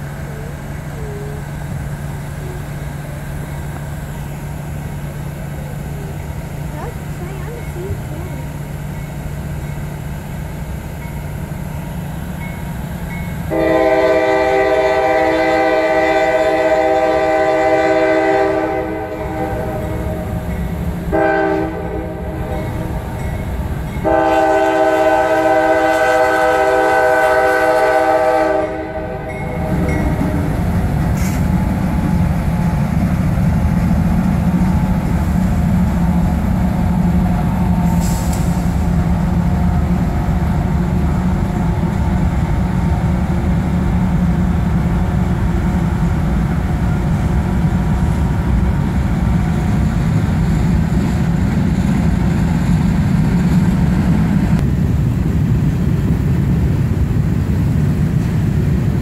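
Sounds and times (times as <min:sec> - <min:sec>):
locomotives rumbling past: 0:00.0 - 0:59.0
locomotive air horn blasts: 0:13.5 - 0:20.4, 0:21.1 - 0:22.9, 0:24.0 - 0:29.9.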